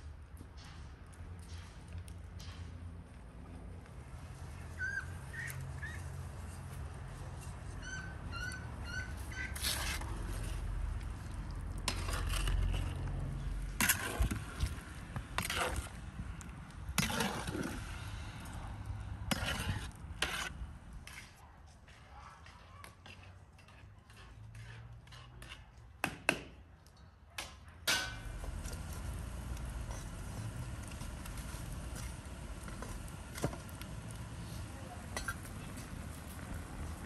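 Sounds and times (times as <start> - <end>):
metal ladle scraping a cauldron: 9.0 - 10.8, 11.8 - 13.1, 13.7 - 14.7, 19.3 - 20.6, 23.6 - 25.7.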